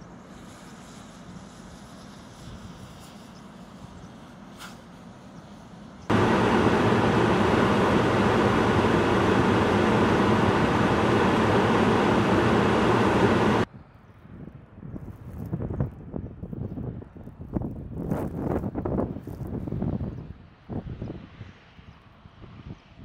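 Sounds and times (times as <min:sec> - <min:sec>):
loud rushing rumble: 0:06.1 - 0:13.7
plow blade scraping snow: 0:06.1 - 0:13.7
snow plow truck approaching: 0:06.1 - 0:13.7.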